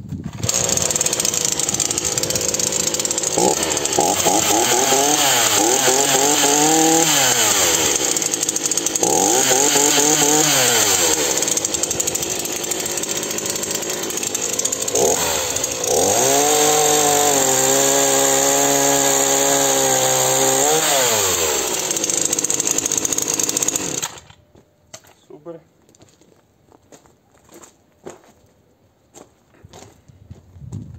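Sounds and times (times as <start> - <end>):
chainsaw revving: 0.3 - 24.3
chainsaw cutting log: 0.3 - 24.4.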